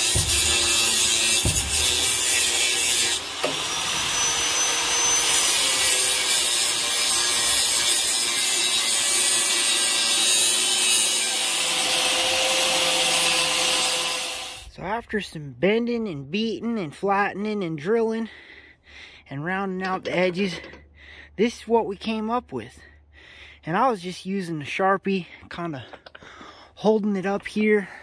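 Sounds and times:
angle grinder cutting steel: 0.0 - 14.7.

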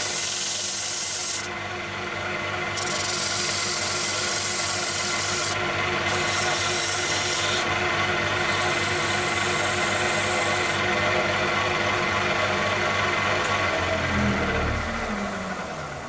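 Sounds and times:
sandpaper rubbing spinning wood: 0.0 - 1.5, 2.8 - 7.7, 8.3 - 10.8
wood lathe humming: 0.0 - 16.0.

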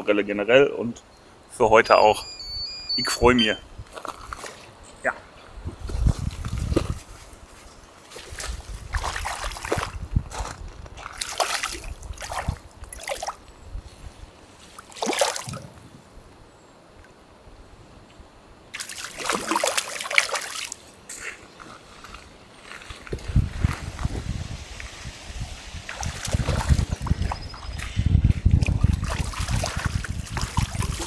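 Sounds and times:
fish splashing at water surface: 11.1 - 13.4, 14.8 - 15.7, 18.8 - 20.8, 25.8 - 27.4.

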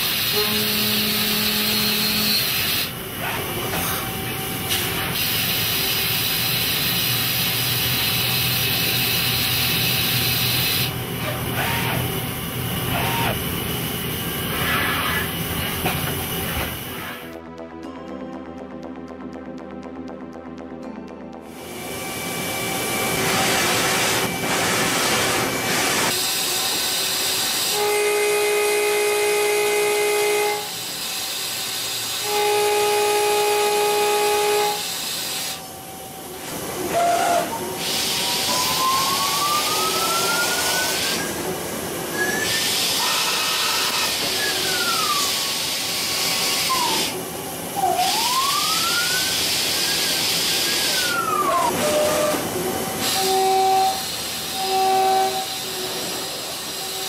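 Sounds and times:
lathe spindle whine: 34.4 - 57.0.

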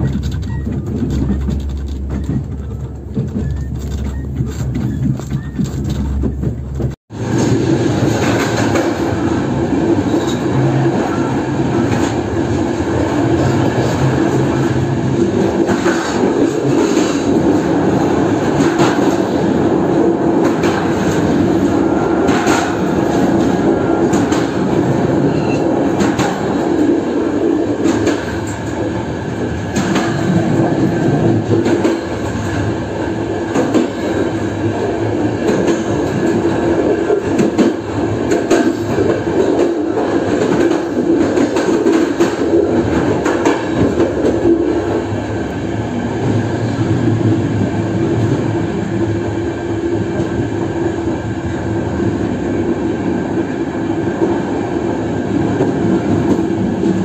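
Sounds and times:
wheels clicking over rail joints: 0.0 - 9.2
train wheels rumbling on rails: 0.0 - 57.0.

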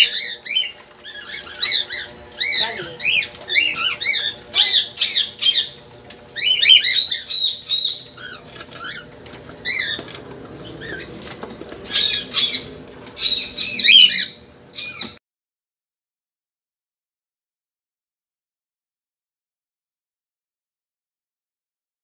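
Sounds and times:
cockatiels chirping: 0.0 - 15.2
wings fluttering: 0.0 - 15.2.

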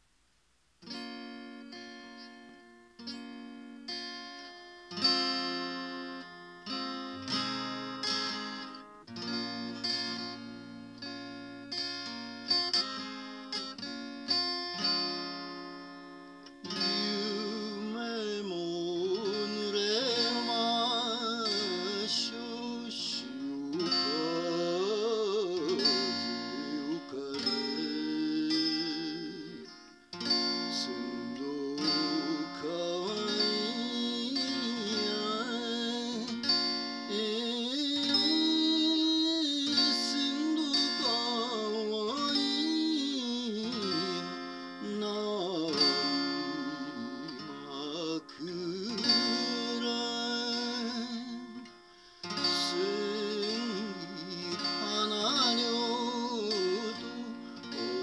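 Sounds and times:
acoustic guitar strummed and plucked: 0.7 - 58.0
man singing: 16.6 - 58.0.

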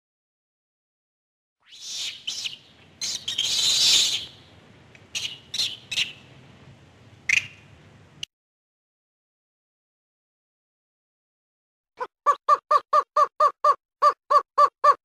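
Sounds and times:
monkey high-pitched calls: 1.7 - 4.4, 5.2 - 6.2, 12.0 - 15.0.

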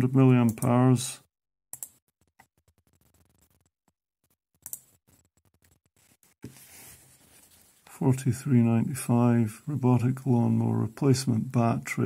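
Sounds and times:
computer mouse clicking: 1.7 - 2.5, 4.6 - 5.6
soft steady hiss: 6.5 - 12.0.

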